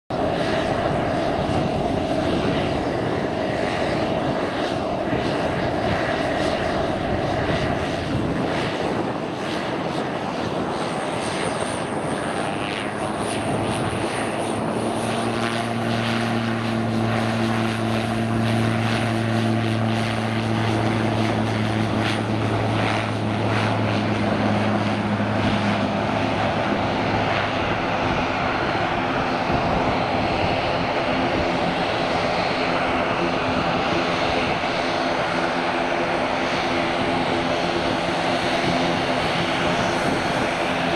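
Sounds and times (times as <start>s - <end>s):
propeller drone: 0.1s - 40.9s.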